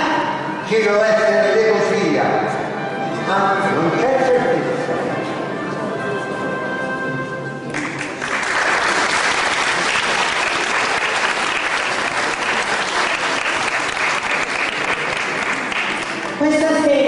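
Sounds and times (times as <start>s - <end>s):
music: 0.0s - 10.0s
audience applause: 7.7s - 16.4s.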